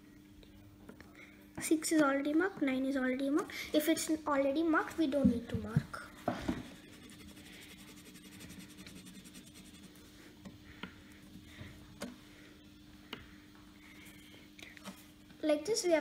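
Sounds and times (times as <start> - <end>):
crayon scribbling on paper: 6.7 - 10.0.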